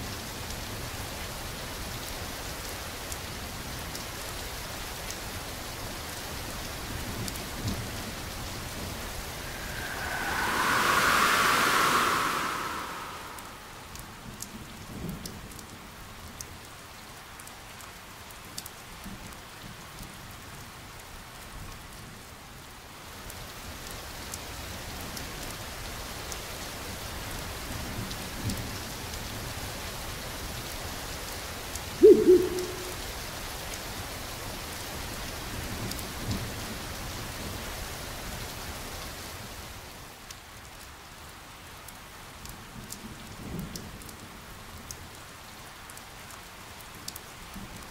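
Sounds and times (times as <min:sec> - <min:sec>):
rain: 0:00.0 - 0:47.9.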